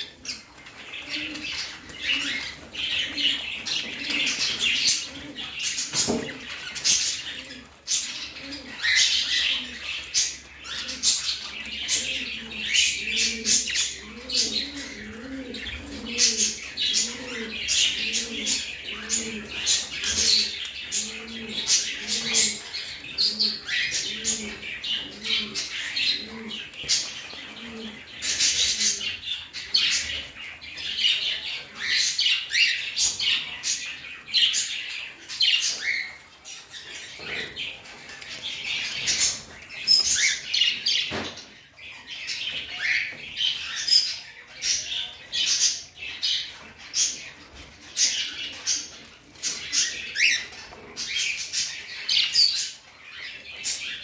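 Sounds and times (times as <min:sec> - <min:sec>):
budgerigars chirping and warbling: 0:00.0 - 0:54.0.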